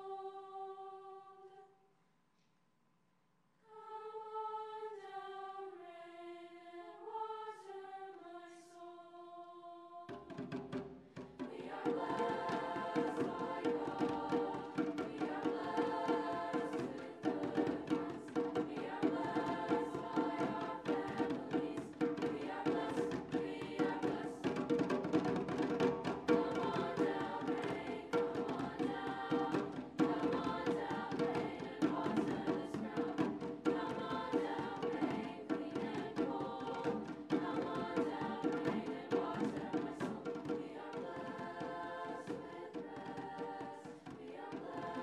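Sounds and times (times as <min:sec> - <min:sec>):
treble choir singing: 0:00.0 - 0:01.8, 0:03.6 - 0:45.0
hand drums rhythmic beat: 0:10.1 - 0:45.0.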